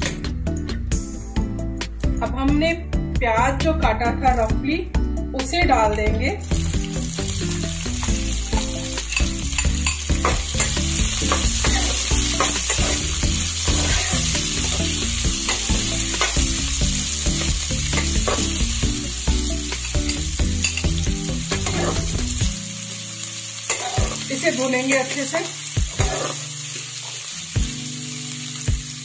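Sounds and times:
onions sizzling in hot oil: 0:06.2 - 0:29.0
spatula scraping a pan: 0:08.6 - 0:16.4, 0:21.6 - 0:22.2, 0:23.7 - 0:24.3, 0:25.9 - 0:27.2.

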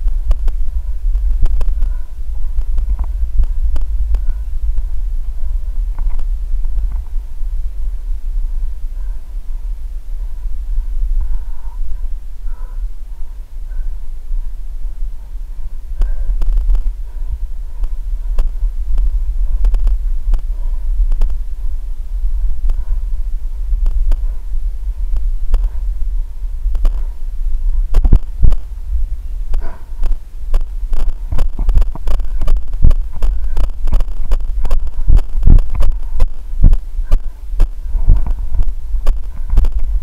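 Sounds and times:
camera jostling rumble: 0:00.0 - 0:40.0
heavy thumps: 0:00.0 - 0:40.0.

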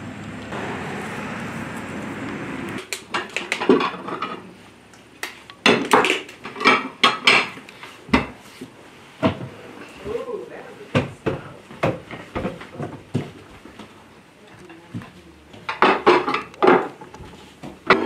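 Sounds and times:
steady outdoor hiss: 0:00.0 - 0:10.9
dishes and cutlery clattering: 0:03.1 - 0:04.5, 0:05.6 - 0:08.4, 0:15.6 - 0:18.0.

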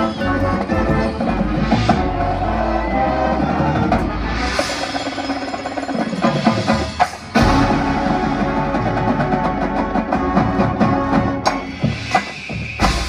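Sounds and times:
brass and woodwind chords: 0:00.0 - 0:05.2, 0:07.4 - 0:12.0
rapid drum strokes: 0:03.4 - 0:13.0.

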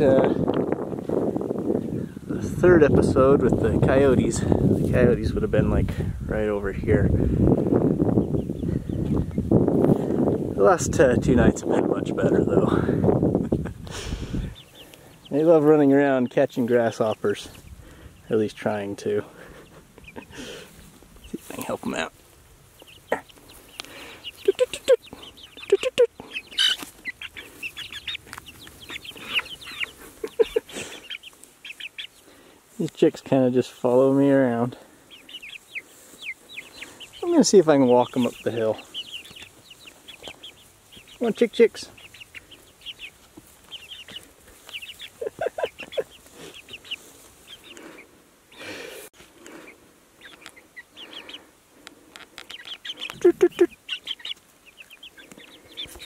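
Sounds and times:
chicks peeping and chirping: 0:00.0 - 0:56.0
low chicken clucks: 0:19.5 - 0:21.7, 0:22.8 - 0:32.3, 0:38.2 - 0:41.2, 0:41.9 - 0:48.1, 0:49.4 - 0:56.0.

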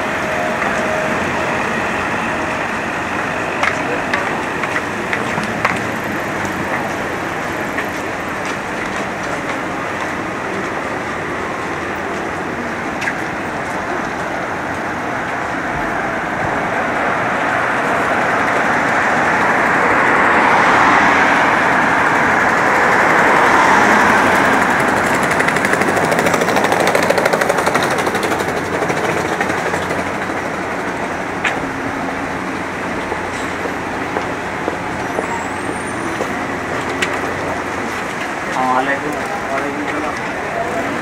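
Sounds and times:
street hum: 0:00.0 - 0:41.0
vehicles passing: 0:00.0 - 0:41.0
rapid pulsing motor: 0:22.5 - 0:31.4.

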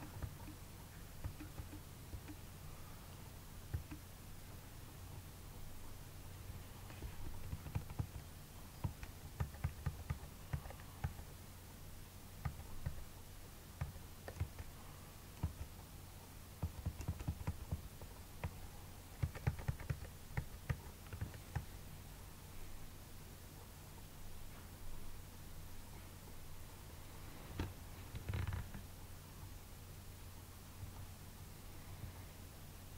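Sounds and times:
low steady hum: 0:00.0 - 0:32.9
keyboard keys clicking: 0:01.2 - 0:02.4, 0:07.3 - 0:08.2, 0:08.8 - 0:11.2, 0:13.8 - 0:14.7, 0:16.6 - 0:17.8, 0:19.2 - 0:21.6.

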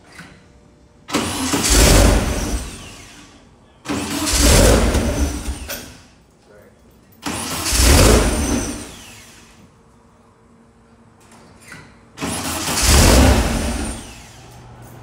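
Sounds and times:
car engine starting and dying: 0:01.0 - 0:06.1, 0:07.2 - 0:09.6, 0:12.2 - 0:15.0.

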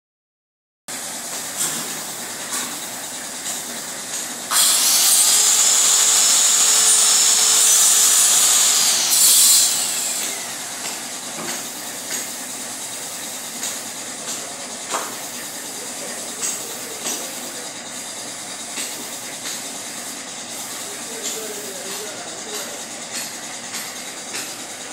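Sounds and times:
spray gun hissing: 0:04.5 - 0:10.2.

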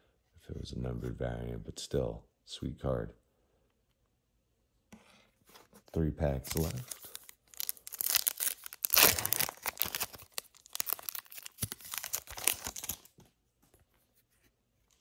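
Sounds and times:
foil wrapper tearing and crinkling: 0:06.5 - 0:13.2.

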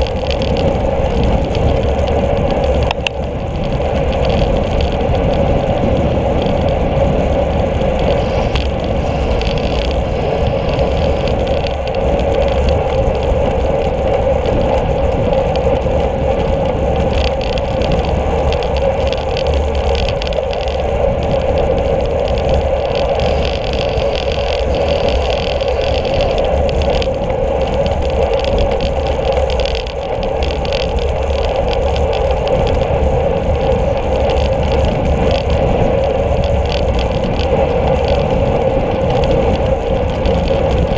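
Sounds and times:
tyres humming on asphalt: 0:00.0 - 0:40.9
wind buffeting microphone: 0:00.0 - 0:40.9.

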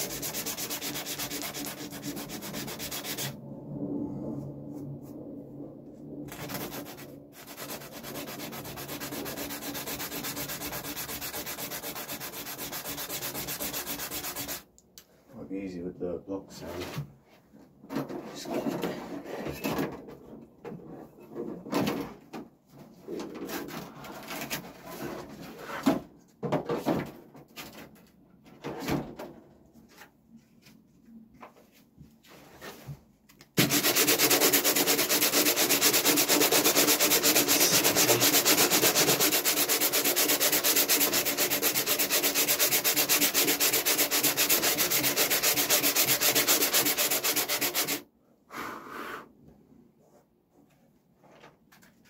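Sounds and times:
hand sanding strokes: 0:00.0 - 0:03.4, 0:06.3 - 0:14.7, 0:33.6 - 0:48.0
electric sander running: 0:33.6 - 0:48.0.

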